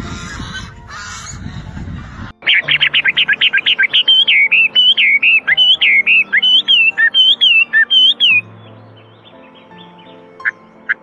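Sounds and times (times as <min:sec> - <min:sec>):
bird singing whistled notes: 0:02.4 - 0:10.6.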